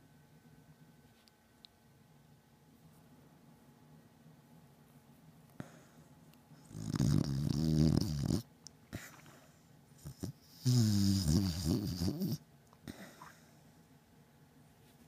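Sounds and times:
dog snoring loudly: 0:06.6 - 0:09.2, 0:10.0 - 0:12.4.

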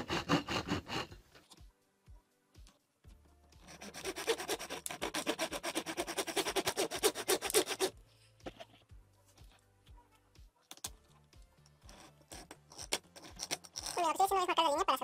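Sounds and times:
hacksaw cutting metal: 0:00.0 - 0:01.2, 0:03.6 - 0:07.9.

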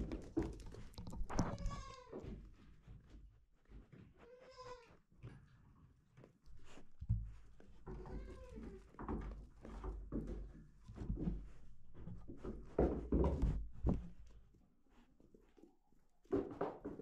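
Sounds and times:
goats rubbing against camera: 0:00.0 - 0:05.0
goat kid bleating: 0:01.3 - 0:02.2, 0:04.2 - 0:04.9.

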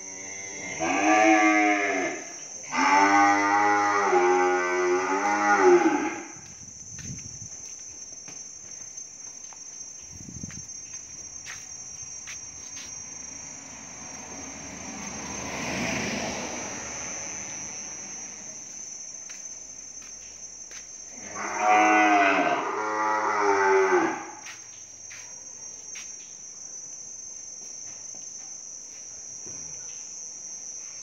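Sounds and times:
cow mooing: 0:00.0 - 0:06.3, 0:21.2 - 0:24.4.

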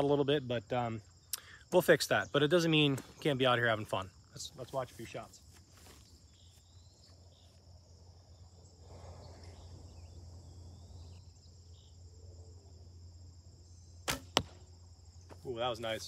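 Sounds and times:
crickets chirring: 0:00.0 - 0:16.0
arrow striking target: 0:14.0 - 0:14.7
bowstring release thump: 0:14.0 - 0:14.7.

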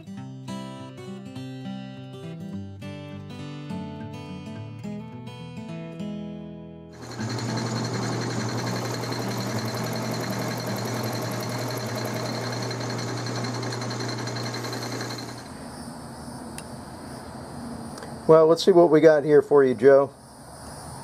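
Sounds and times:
end mill cutting metal: 0:07.0 - 0:15.6
milling machine humming: 0:07.0 - 0:15.6.

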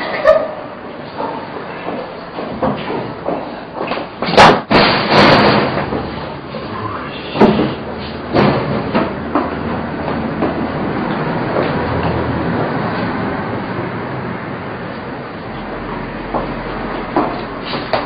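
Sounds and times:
sudden bangs and thuds: 0:04.2 - 0:06.2, 0:07.4 - 0:09.6.

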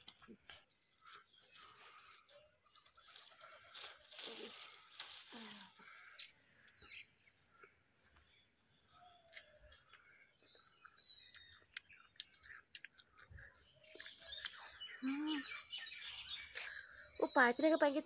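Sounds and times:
birds chirping: 0:00.0 - 0:18.0
biting and chewing pear: 0:09.1 - 0:15.0.

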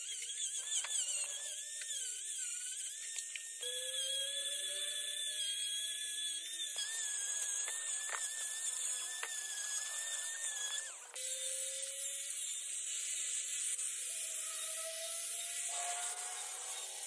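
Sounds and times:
rotary carving tool grinding wood: 0:00.0 - 0:17.0.

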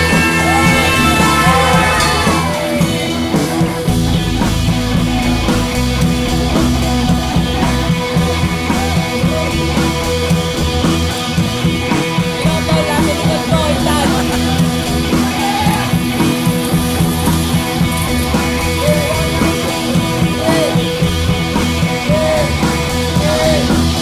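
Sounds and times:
rock music with electric guitar: 0:00.0 - 0:24.0.

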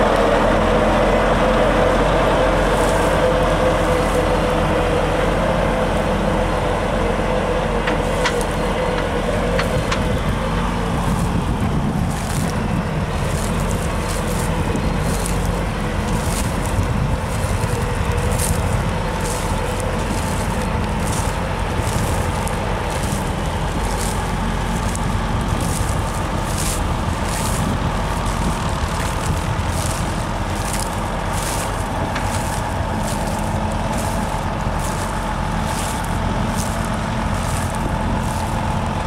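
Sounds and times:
tractor diesel engine running: 0:00.0 - 0:39.0
tractor whine: 0:00.0 - 0:39.0.

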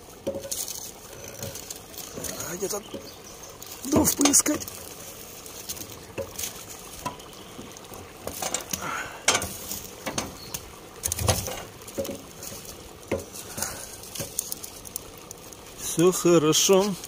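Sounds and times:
wood fire crackling and popping: 0:00.0 - 0:17.0
stick knocking logs: 0:02.8 - 0:04.8, 0:11.0 - 0:14.6.

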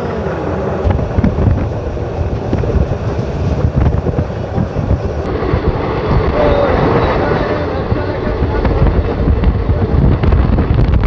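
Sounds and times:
train rumbling on track: 0:00.0 - 0:11.0
wind buffeting microphone: 0:00.0 - 0:11.0.

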